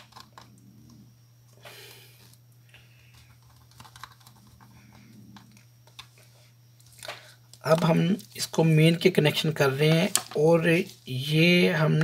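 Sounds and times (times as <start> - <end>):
hands handling circuit board: 0.0 - 0.5, 3.1 - 4.7
low steady hum: 0.0 - 12.0.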